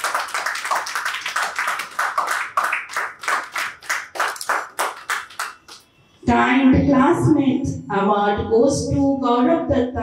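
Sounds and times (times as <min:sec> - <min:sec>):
people clapping in rhythm: 0:00.0 - 0:05.9.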